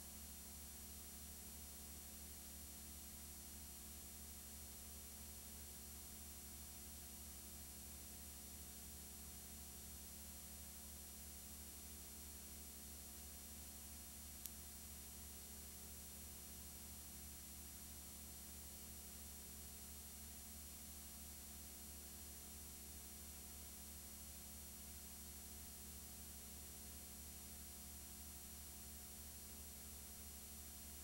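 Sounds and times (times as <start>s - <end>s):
low hum and hiss: 0.0s - 31.0s
faint click: 14.4s - 14.7s.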